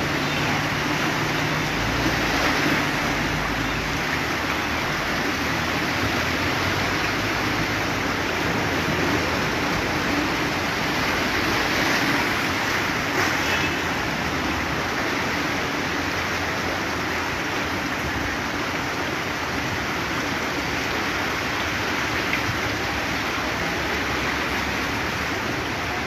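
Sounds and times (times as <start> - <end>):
floodwater rushing: 0.0 - 26.0
vehicles wading through water: 0.0 - 26.0.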